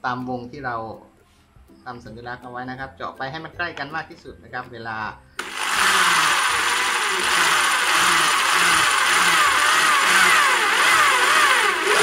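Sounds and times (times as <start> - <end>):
electric drill whining: 5.4 - 12.0.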